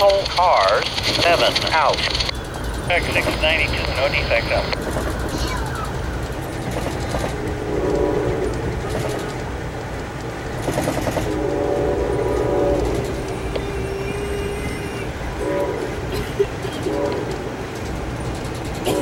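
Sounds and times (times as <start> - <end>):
train rumbling on rails: 0.0 - 19.0
train horn blasts: 7.3 - 9.3, 11.2 - 17.8.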